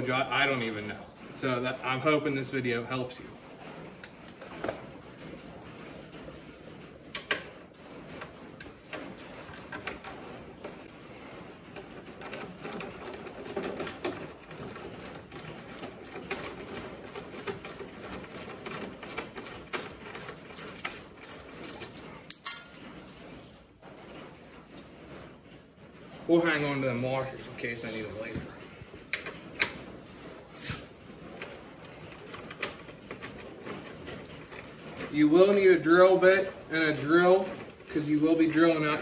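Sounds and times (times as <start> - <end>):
metal hardware clinking on concrete: 22.0 - 23.0.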